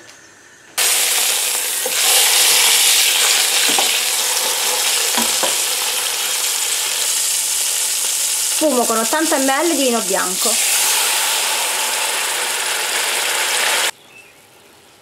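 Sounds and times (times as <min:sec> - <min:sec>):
meat sizzling in hot oil: 0:00.8 - 0:13.9
wooden spoons knocking a pot: 0:03.6 - 0:04.0, 0:05.1 - 0:05.7.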